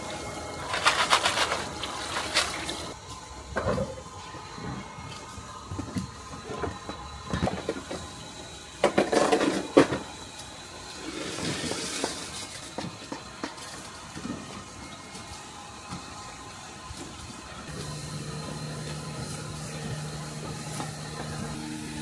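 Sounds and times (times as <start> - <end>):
pots and utensils clattering: 0.0 - 4.0, 8.8 - 10.1
water splashing and running: 0.7 - 3.0.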